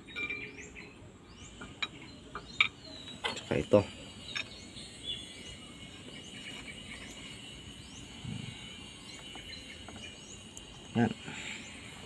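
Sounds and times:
faint chirping: 0:00.0 - 0:12.0.

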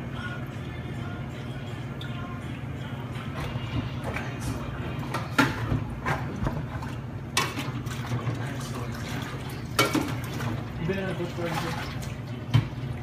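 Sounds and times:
steady low hum: 0:00.0 - 0:13.0
water sloshing in sink: 0:03.2 - 0:13.0.

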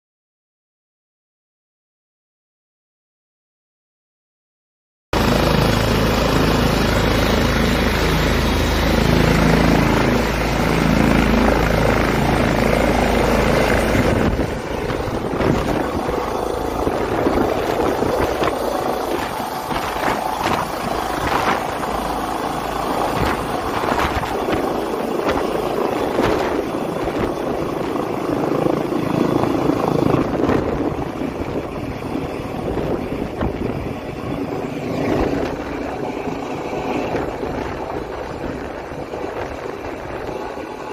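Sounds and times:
helicopter rotor and turbine: 0:05.2 - 0:40.9
rotor downwash buffeting microphone: 0:05.2 - 0:40.9.

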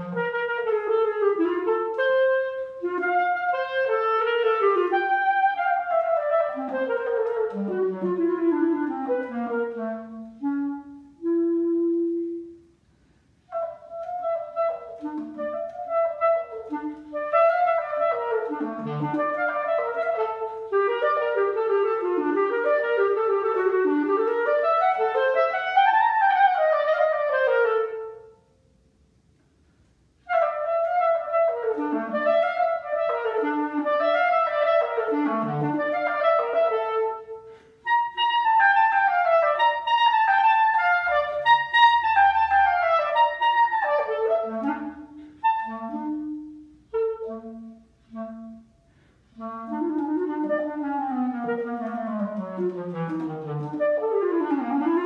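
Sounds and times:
clarinet playing fast runs: 0:00.0 - 0:12.6, 0:13.4 - 0:28.3, 0:30.2 - 0:55.0.

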